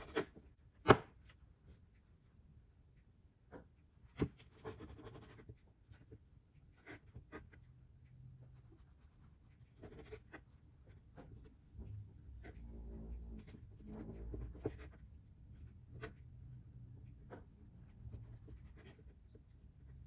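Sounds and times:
knife slicing bread: 0.0 - 1.1.

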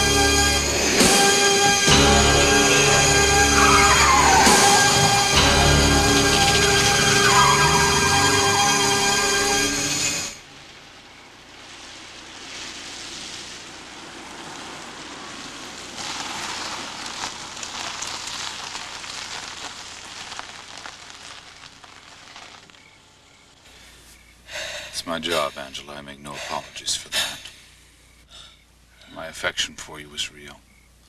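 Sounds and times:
loud dramatic music: 0.0 - 10.4
car tyres hissing on wet road: 0.0 - 25.4.

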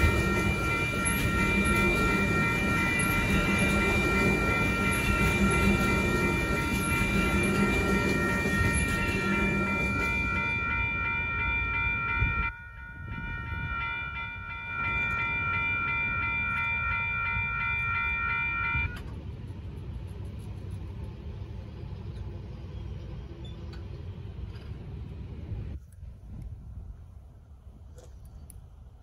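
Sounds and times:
railroad crossing bell ringing: 0.0 - 19.1
train rumble: 0.0 - 29.0.

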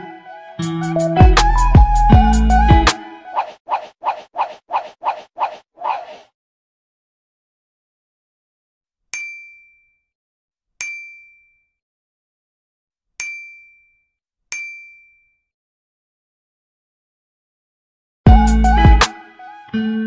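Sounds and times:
bell-like ding sound effects: 9.2 - 10.0, 10.8 - 11.7, 13.2 - 15.4.

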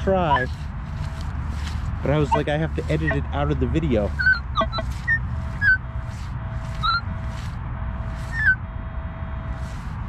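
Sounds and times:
metal detector beeps: 0.2 - 0.6, 2.1 - 8.6.

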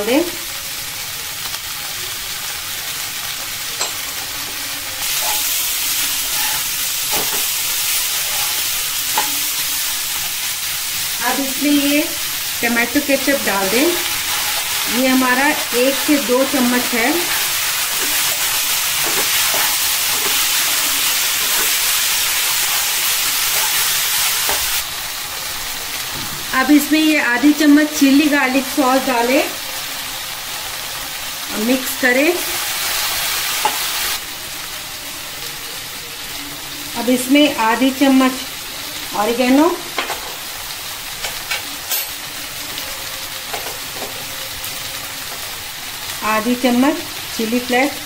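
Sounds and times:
vegetables sizzling in a wok: 0.0 - 48.0
spatula scraping pan: 5.0 - 9.6.

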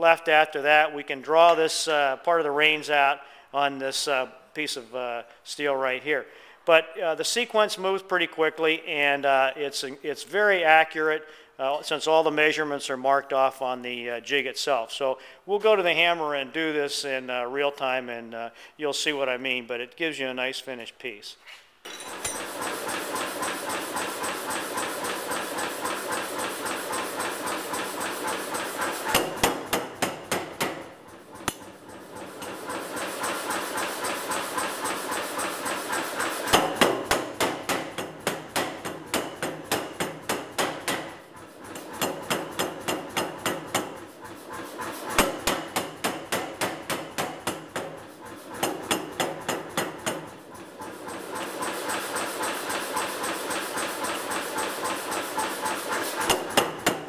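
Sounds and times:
power hammer forging steel: 21.8 - 57.0.

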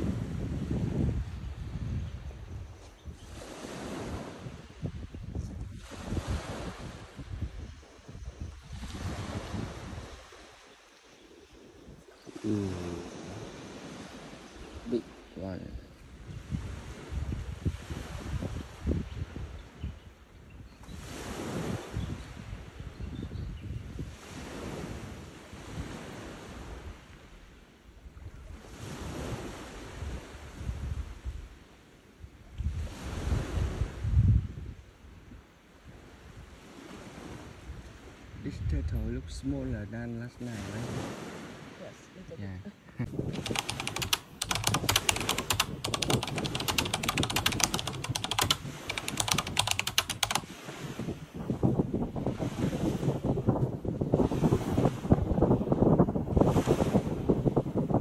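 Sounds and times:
surf washing on beach: 0.0 - 1.8, 3.2 - 5.0, 5.6 - 8.0, 8.7 - 15.5, 21.0 - 22.8, 24.0 - 27.4, 28.5 - 31.4, 40.5 - 41.8, 43.0 - 58.0
wind buffeting microphone: 0.0 - 10.5, 15.7 - 27.0, 28.0 - 31.5, 32.3 - 34.9, 43.0 - 58.0
keyboard key clicks: 43.2 - 50.4.

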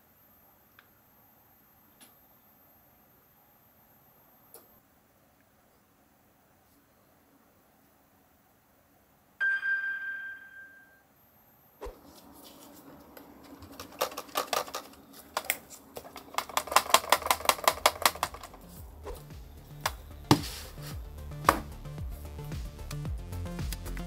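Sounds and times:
loose part rattling in metal case: 13.6 - 18.6.

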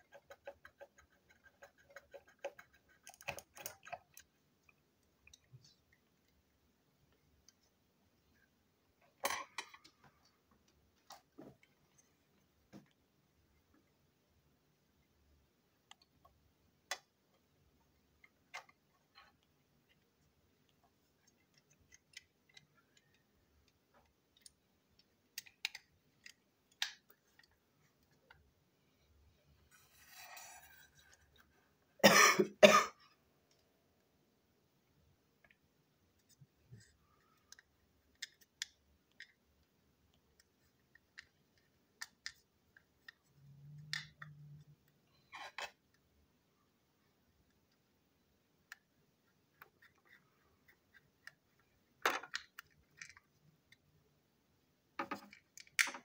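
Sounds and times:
small plastic clicks and taps: 20.7 - 28.5.

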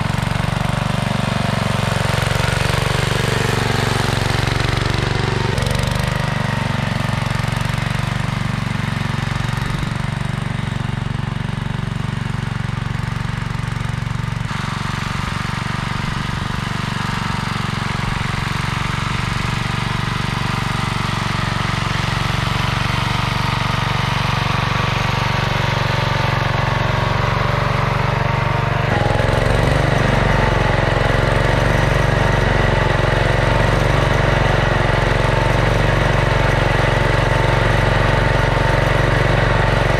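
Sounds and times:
garden tractor engine under load: 0.0 - 39.9.

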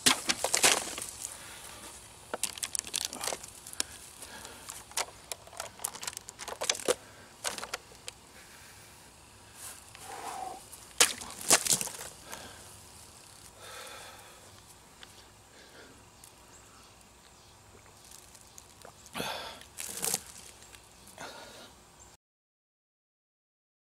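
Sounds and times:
knife slashing plastic bottle: 11.0 - 12.0.

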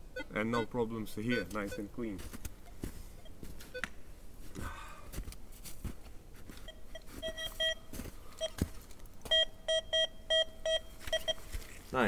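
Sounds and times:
metal detector beeps: 0.2 - 1.9, 6.6 - 8.6, 9.3 - 11.4.

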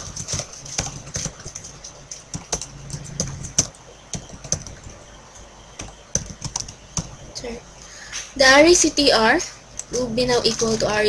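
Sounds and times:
keyboard typing: 0.0 - 7.4, 9.8 - 11.0.

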